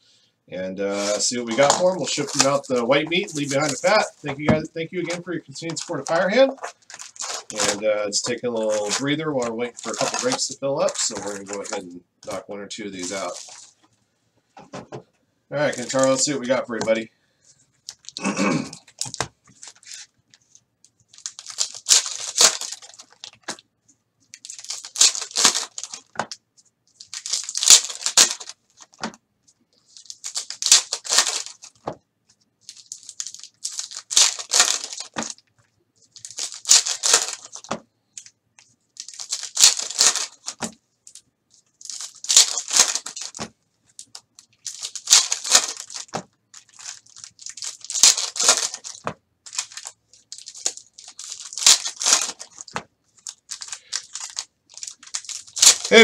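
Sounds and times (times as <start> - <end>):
foil wrappers tearing and crinkling: 1.0 - 13.7, 15.7 - 17.0, 21.1 - 23.5, 24.3 - 26.2, 27.0 - 29.0, 29.8 - 31.8, 32.6 - 35.4, 36.1 - 37.7, 39.0 - 56.0.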